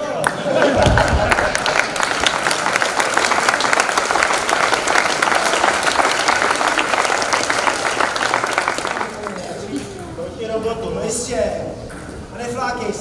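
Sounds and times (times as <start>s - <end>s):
crowd applauding: 0.0s - 10.2s.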